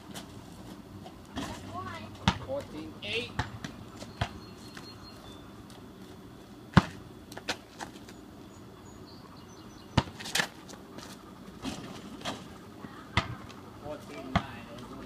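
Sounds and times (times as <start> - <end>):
basketball thumping on asphalt: 1.0 - 4.4, 6.7 - 8.2, 9.9 - 12.5, 13.2 - 13.6, 14.2 - 14.7.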